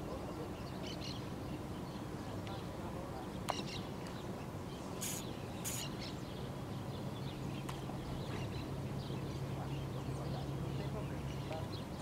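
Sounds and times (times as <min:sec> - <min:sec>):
low steady hum: 0:00.0 - 0:12.0
small birds chirping: 0:00.1 - 0:12.0
high hissing bursts: 0:05.0 - 0:05.9.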